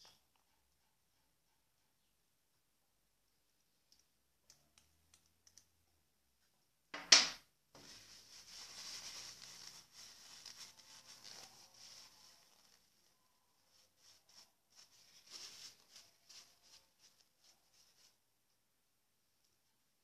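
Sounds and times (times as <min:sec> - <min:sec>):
paper tissue rustling: 0:07.8 - 0:18.3.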